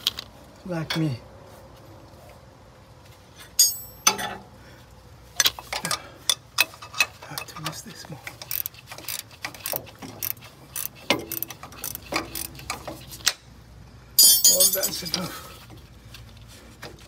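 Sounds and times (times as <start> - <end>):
ratchet wrench clicking: 5.4 - 13.4.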